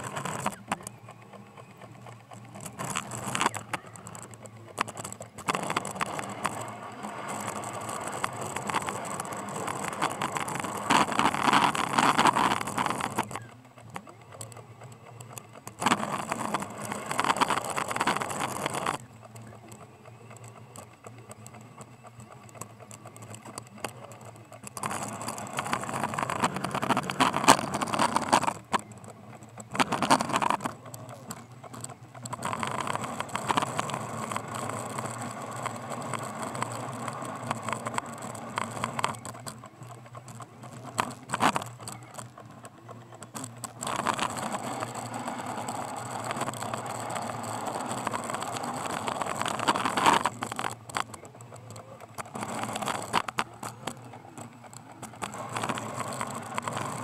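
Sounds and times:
snow plow rattling and scraping: 32.2s - 57.0s.

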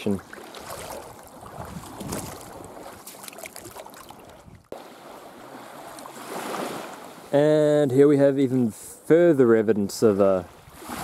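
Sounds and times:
small waves lapping at shore: 0.0s - 7.8s, 10.0s - 11.0s
wind on microphone: 0.6s - 3.0s, 3.6s - 4.8s.

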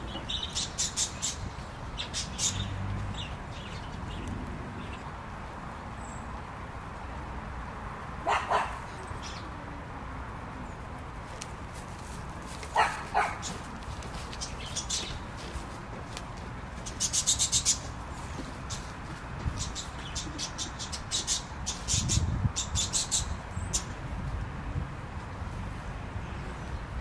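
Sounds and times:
dog barking: 8.2s - 8.9s, 12.8s - 13.5s.

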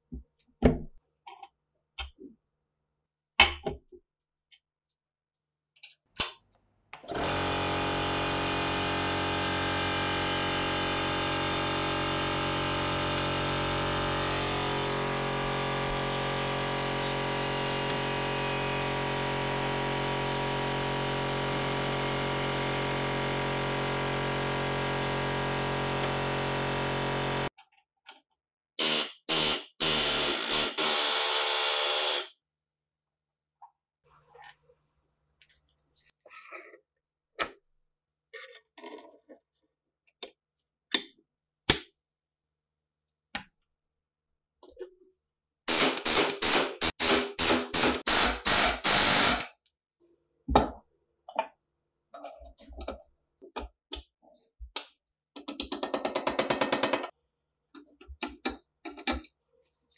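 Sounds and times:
small electric motor running: 7.2s - 27.5s, 28.8s - 32.3s, 45.7s - 49.6s.

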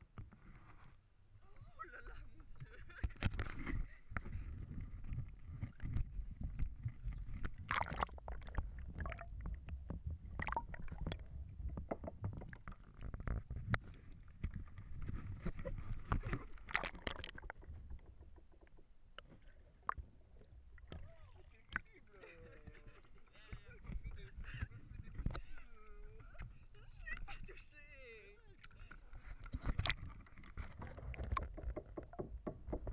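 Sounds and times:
low rumble of water buffeting: 1.1s - 32.0s
seawater slapping and splashing: 5.5s - 11.3s, 12.3s - 17.7s, 29.0s - 31.6s.

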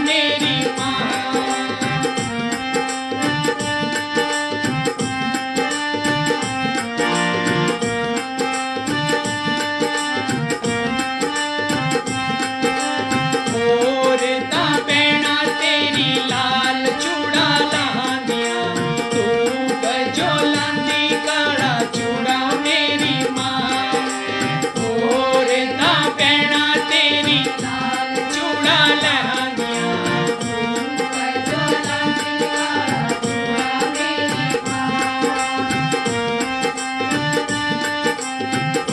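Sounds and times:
man singing: 0.0s - 2.5s, 12.7s - 36.1s
harmonium melody: 0.0s - 38.9s
steady drum beat: 14.5s - 38.1s.

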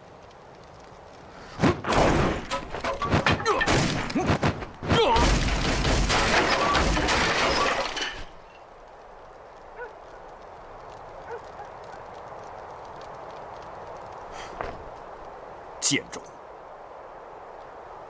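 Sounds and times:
loud crashing and shattering: 1.6s - 8.4s.

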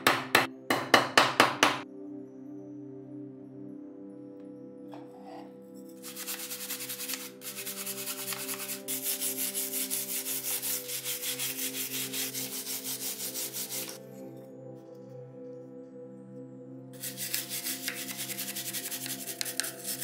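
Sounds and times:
sanding block on metal: 6.0s - 14.0s, 17.0s - 20.0s.

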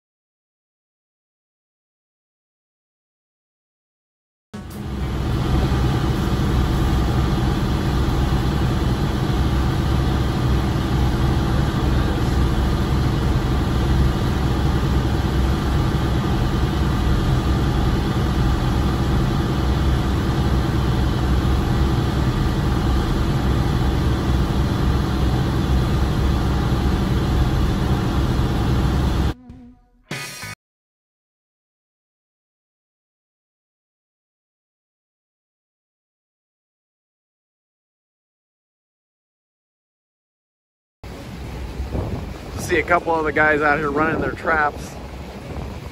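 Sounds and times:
diesel engines droning: 4.6s - 29.4s, 41.1s - 45.9s.

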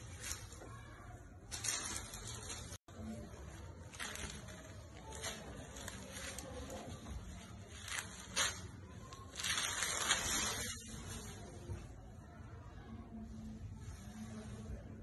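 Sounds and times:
sequinned fabric rustling: 1.5s - 12.0s.

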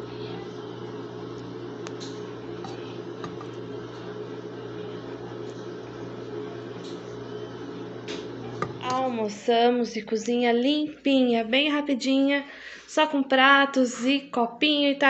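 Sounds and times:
kitchen motor humming: 0.0s - 11.3s.

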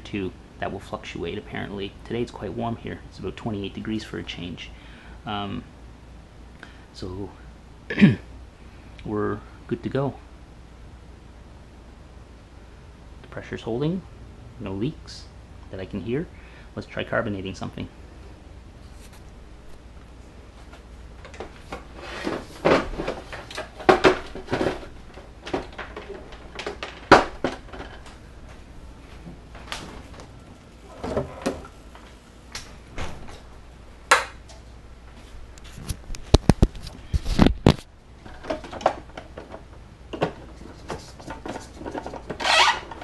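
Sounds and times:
household handling clatter: 21.2s - 28.6s, 35.7s - 43.0s.

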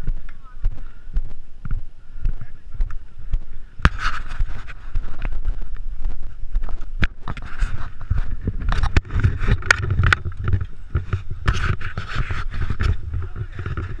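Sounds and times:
wind rumbling on microphone: 0.0s - 14.0s
camera handling knocks and scrapes: 3.8s - 5.4s, 6.9s - 14.0s.

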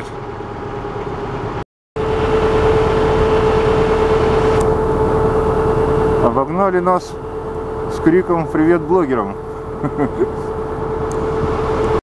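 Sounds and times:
motorboat engine running: 0.0s - 12.0s
steady droning tone: 0.0s - 12.0s
water noise: 2.0s - 7.9s.

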